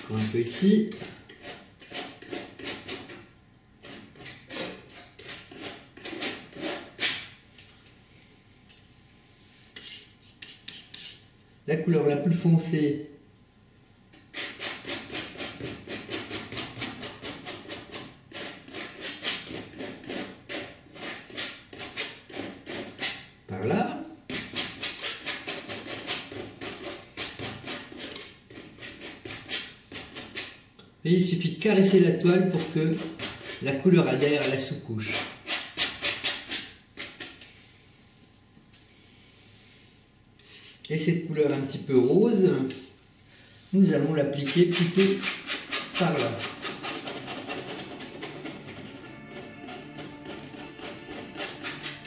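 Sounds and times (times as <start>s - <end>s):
painting knife scraping canvas: 0.0s - 7.4s, 9.5s - 11.3s, 14.2s - 23.3s, 24.3s - 30.6s, 32.4s - 37.7s, 40.4s - 40.9s, 42.7s - 52.0s.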